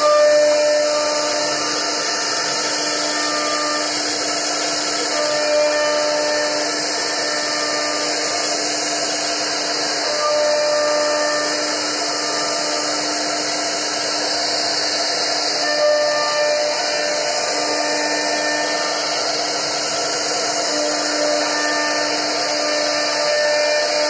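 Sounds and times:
bit cutting wood hiss: 0:00.0 - 0:24.0
router spindle whine: 0:00.0 - 0:24.0.

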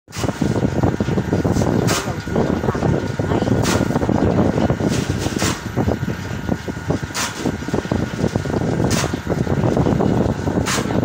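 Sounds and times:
printing machine clatter: 0:01.0 - 0:06.4.

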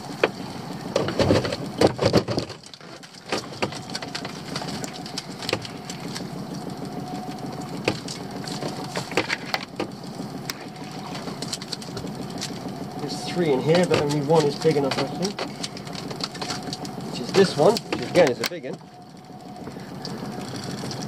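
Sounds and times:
clicks and rattles: 0:13.7 - 0:19.0.

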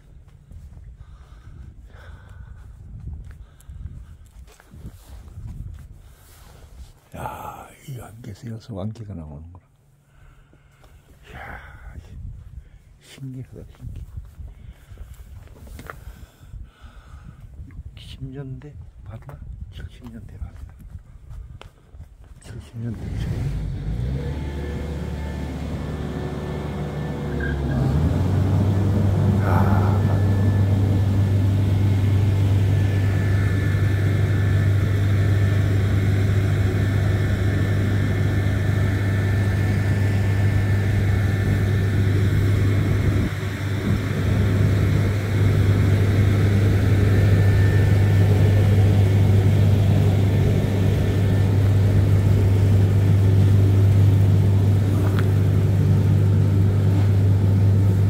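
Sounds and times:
deep machine hum: 0:07.1 - 0:08.4, 0:22.5 - 0:58.0.

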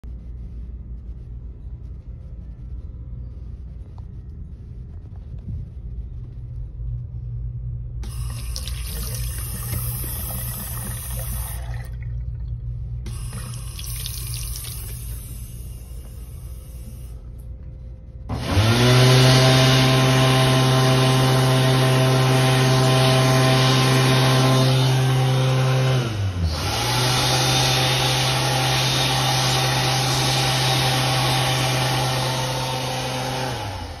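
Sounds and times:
low hum: 0:00.0 - 0:34.0
hand dryer motor whine: 0:08.0 - 0:11.9, 0:18.3 - 0:34.0.

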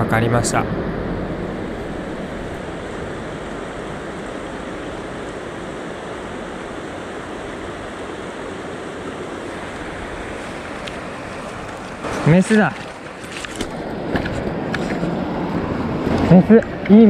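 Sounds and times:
river rapids rushing over stones: 0:01.8 - 0:15.1.

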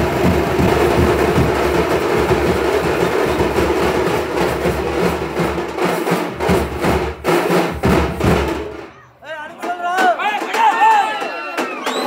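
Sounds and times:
crowd din: 0:08.2 - 0:12.0.

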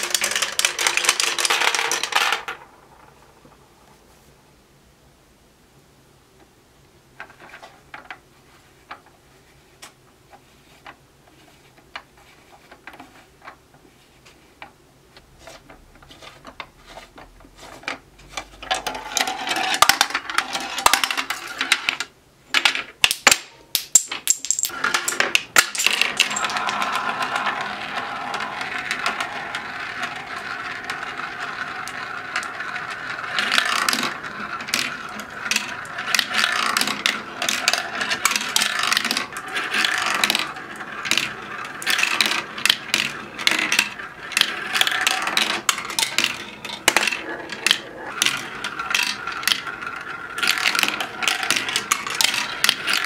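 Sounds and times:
marbles rolling on plastic track: 0:00.0 - 0:03.6, 0:16.0 - 0:53.0.

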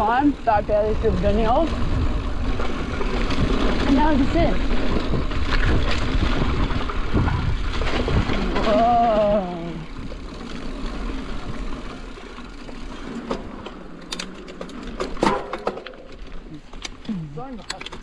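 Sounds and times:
wind rush on microphone: 0:00.0 - 0:10.3
bike tyre noise on dirt: 0:00.0 - 0:18.0
sharp clicks and knocks: 0:16.8 - 0:18.0.

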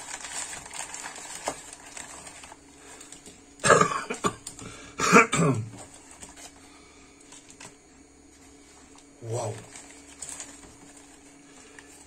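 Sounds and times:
newspaper rustling: 0:00.0 - 0:03.5, 0:05.8 - 0:12.0
man coughing: 0:03.6 - 0:05.8.

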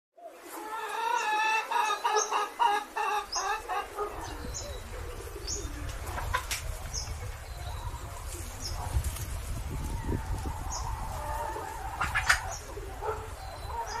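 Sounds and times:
low wind rumble: 0:03.1 - 0:14.0.

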